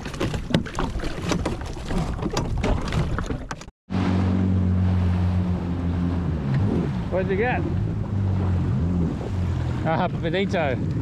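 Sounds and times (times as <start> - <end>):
water splashes: 0.0 - 11.0
jet ski engine droning: 3.9 - 11.0.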